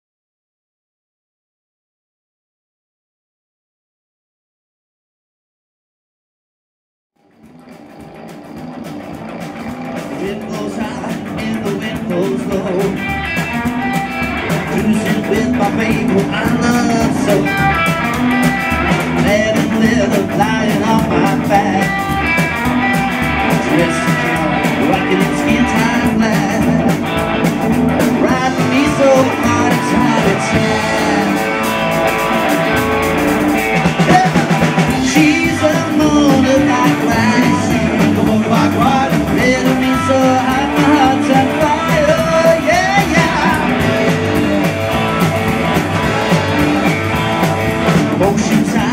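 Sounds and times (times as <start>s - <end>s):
drums: 7.2s - 48.9s
electric guitar: 7.2s - 48.9s
double bass: 7.3s - 48.9s
man singing: 10.0s - 13.5s, 14.5s - 18.0s, 18.8s - 22.4s, 23.4s - 27.2s, 28.0s - 32.0s, 33.9s - 44.5s, 47.9s - 48.9s.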